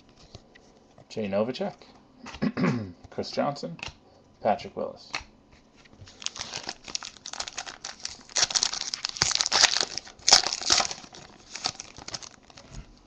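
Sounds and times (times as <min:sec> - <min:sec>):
foil wrapper tearing and crinkling: 0:06.1 - 0:12.8.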